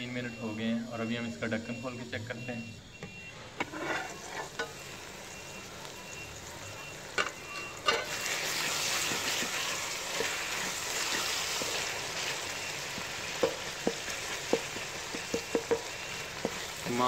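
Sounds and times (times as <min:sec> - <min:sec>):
masala sizzling in oil: 0:00.0 - 0:17.0
metal lid clanking: 0:07.2 - 0:08.2
spoon knocking against pot: 0:12.9 - 0:16.8.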